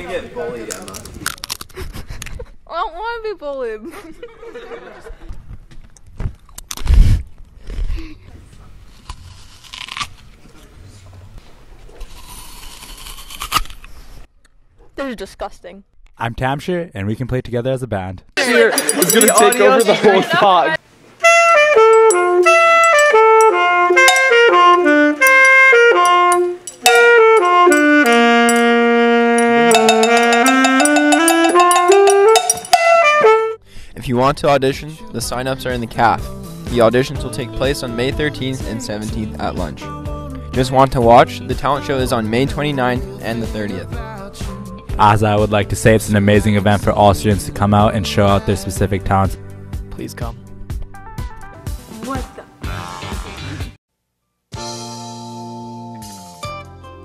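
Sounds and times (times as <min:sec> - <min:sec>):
apple bite crunch: 0:00.7 - 0:01.8, 0:08.9 - 0:10.7, 0:11.9 - 0:13.9
mouth noises and clicks: 0:00.7 - 0:02.4
triangle and hand percussion: 0:18.4 - 0:20.3, 0:21.8 - 0:33.4
saxophones playing melody: 0:21.2 - 0:33.6.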